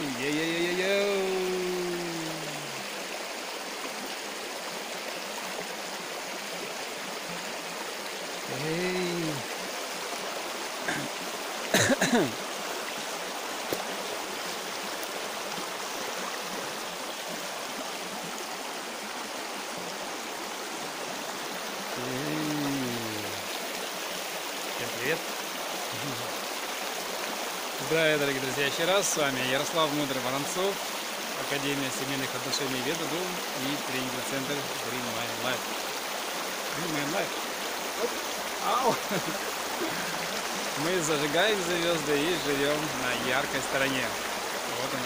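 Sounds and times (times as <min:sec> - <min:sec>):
river rushing over stones: 0:00.0 - 0:45.0
short vocal sound: 0:00.4 - 0:02.8, 0:08.5 - 0:09.4, 0:22.0 - 0:23.5.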